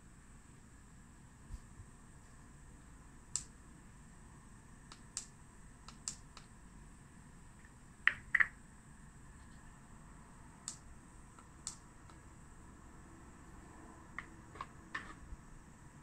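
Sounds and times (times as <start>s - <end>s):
plastic clicks and taps: 8.0s - 8.5s.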